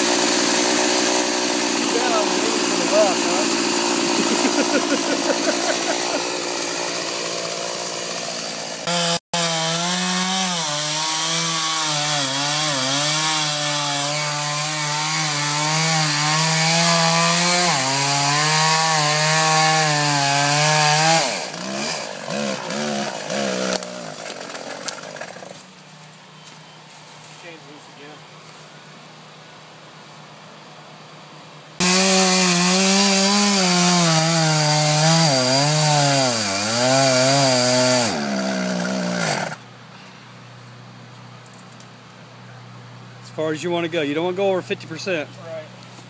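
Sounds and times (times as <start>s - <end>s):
chainsaw cutting tree trunk: 0.0s - 25.6s, 31.8s - 39.6s.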